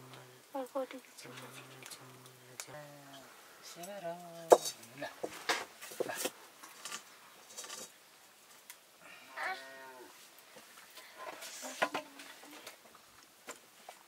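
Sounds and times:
rustling: 3.0 - 8.8, 9.4 - 14.0
sheep bleating: 9.3 - 10.1.

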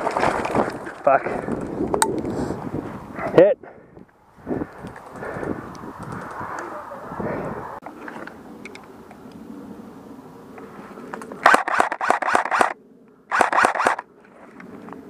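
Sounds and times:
airsoft gun shots: 11.4 - 14.0.

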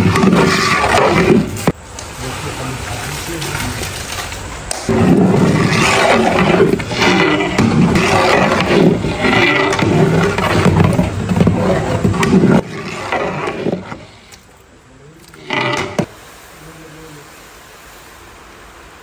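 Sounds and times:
ladle scraping and sloshing in pot: 0.0 - 14.6, 15.2 - 16.1
loud rumble: 4.8 - 14.1.

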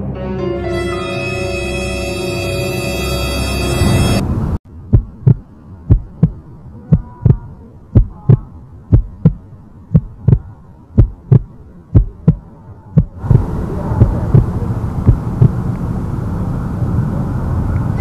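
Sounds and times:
faint hum: 0.9 - 18.0
heartbeat thumps: 4.9 - 12.4, 13.0 - 15.6.

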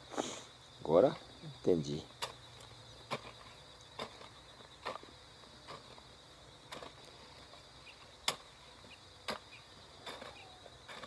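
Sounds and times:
insects chirring: 0.0 - 11.0
hoe chopping into soil: 3.0 - 3.4, 8.2 - 8.5, 9.2 - 11.0.

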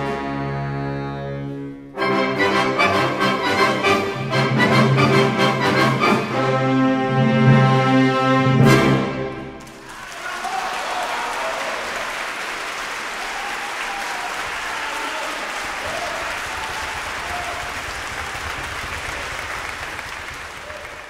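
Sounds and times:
audience applauding: 9.6 - 21.0.

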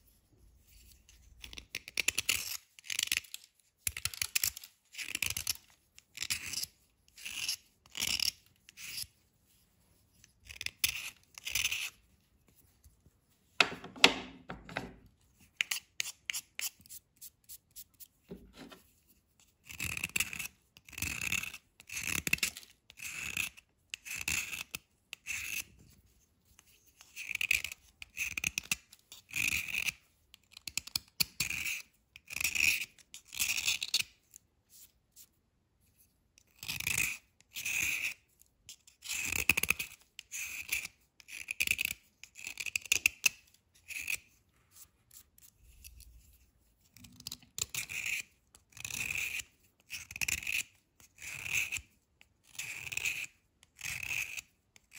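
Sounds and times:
metal blade scraping chalk: 0.7 - 12.7, 13.6 - 25.7, 36.4 - 54.9.

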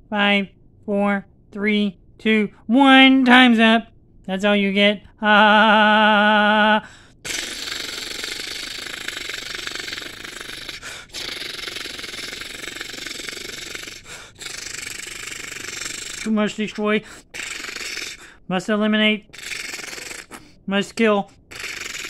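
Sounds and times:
robotic vocal tone: 5.3 - 18.4, 19.2 - 20.4, 21.5 - 22.0.

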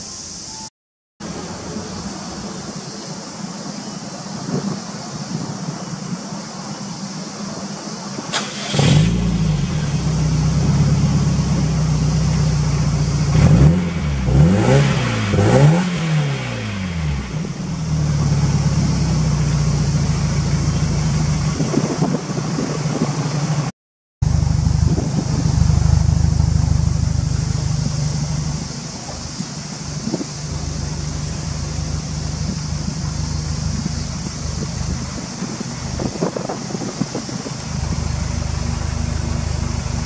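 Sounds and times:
car engine idling and revving: 8.5 - 40.0.

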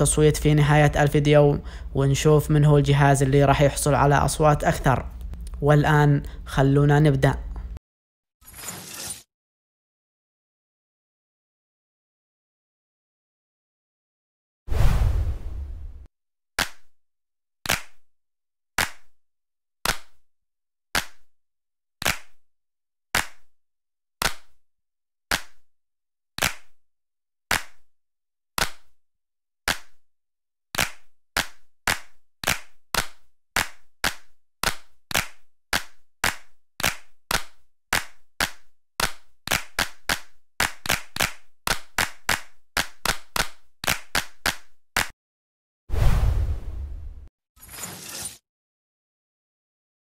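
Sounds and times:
sharp clap-like percussive hits: 30.8 - 45.1.

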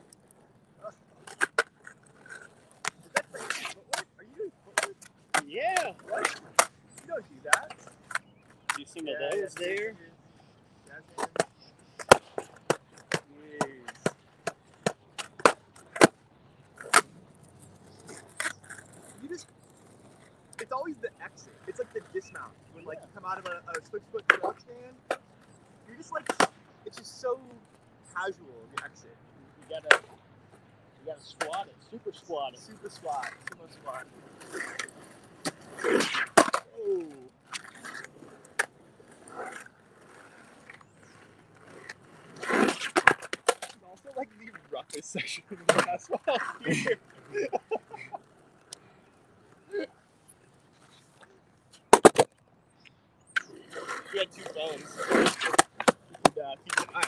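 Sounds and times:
skateboard clacking: 0.0 - 10.4, 11.1 - 52.4, 53.3 - 57.0.

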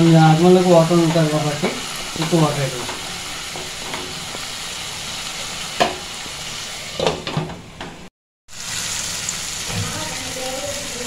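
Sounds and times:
masala sizzling in a pan: 0.0 - 7.0, 8.5 - 11.0.

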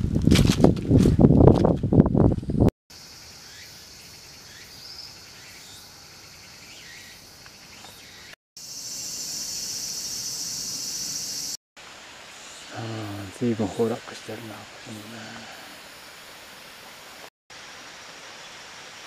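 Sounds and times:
faint insect chirps: 2.9 - 17.3
insects droning: 2.9 - 19.0.

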